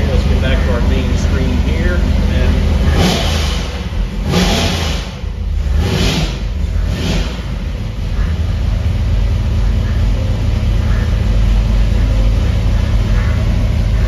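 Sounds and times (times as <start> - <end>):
engine rumbling and revving: 0.0 - 14.0.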